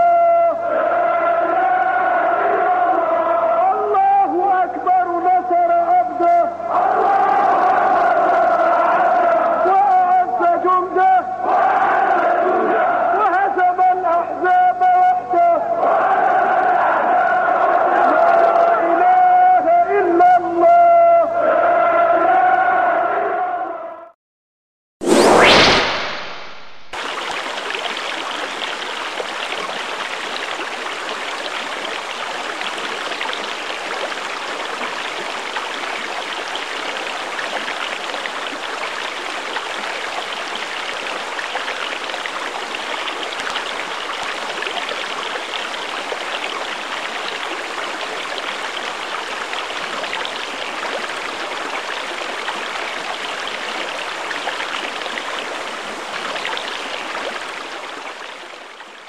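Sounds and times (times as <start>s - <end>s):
water rushing: 25.0s - 59.0s.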